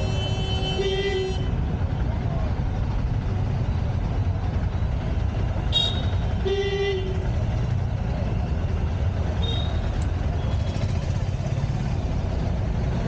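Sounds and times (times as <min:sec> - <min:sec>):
vehicle horn honking: 0:00.0 - 0:01.5, 0:05.7 - 0:07.3
road traffic: 0:00.0 - 0:13.0.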